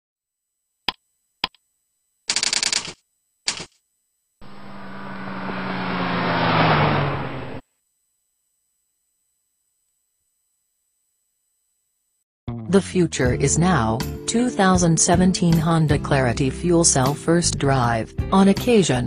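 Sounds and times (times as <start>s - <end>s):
rush of noise with low hum: 4.4s - 7.6s.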